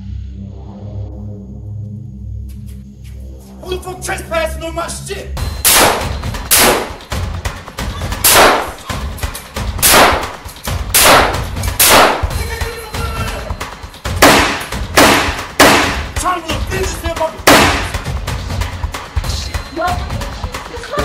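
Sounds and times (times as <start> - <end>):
low background music: 0.0 - 21.0
handgun shots with reverb: 5.7 - 7.0, 8.2 - 8.8, 9.8 - 10.4, 11.0 - 12.4, 14.2 - 16.1, 17.5 - 18.0.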